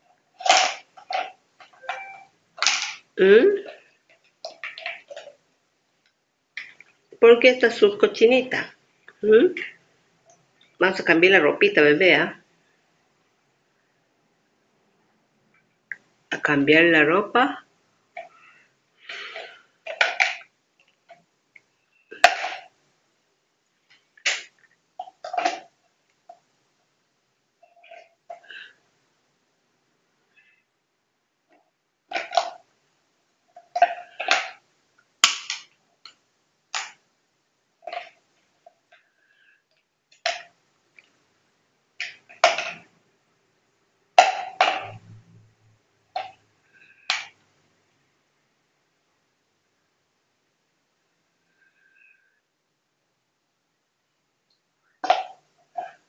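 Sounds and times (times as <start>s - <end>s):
plastic parts clacking on tile: 0.1s - 2.0s, 2.6s - 5.4s, 19.0s - 21.2s, 23.8s - 26.4s, 32.1s - 32.7s, 33.5s - 34.6s, 37.8s - 41.2s, 42.0s - 42.9s, 46.2s - 47.4s.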